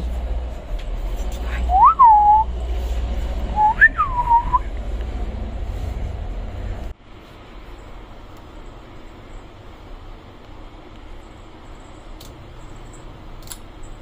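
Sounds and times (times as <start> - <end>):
steady low hum: 0.0 - 14.0
person whistling: 1.7 - 2.5, 3.6 - 4.7.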